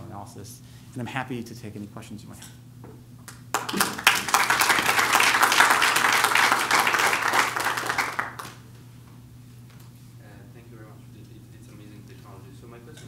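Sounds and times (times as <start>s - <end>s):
audience applauding: 3.3s - 8.6s.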